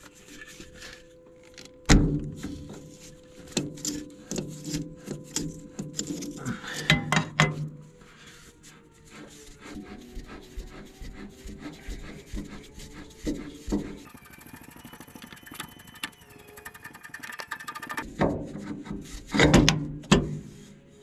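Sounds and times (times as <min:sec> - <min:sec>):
metal knocks and scraping: 0:01.9 - 0:07.8, 0:16.8 - 0:20.5
metal filter clicking and rubbing: 0:16.7 - 0:18.1.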